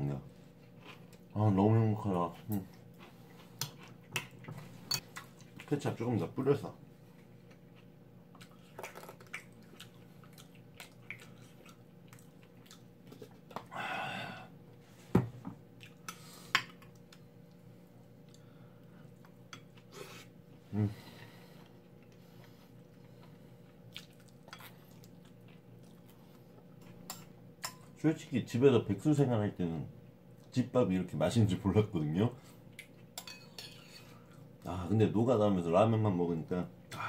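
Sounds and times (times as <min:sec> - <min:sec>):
faint steady hum: 0:00.0 - 0:37.0
chewing: 0:00.6 - 0:01.3, 0:02.4 - 0:05.7, 0:07.2 - 0:13.7, 0:21.6 - 0:27.1.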